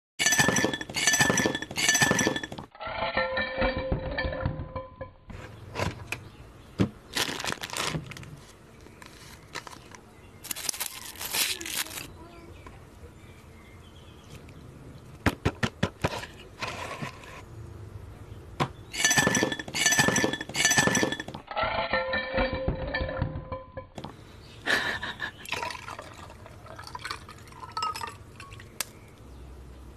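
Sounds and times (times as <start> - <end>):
ice clinking in a glass: 0.2 - 2.6, 19.0 - 21.3, 25.6 - 28.7.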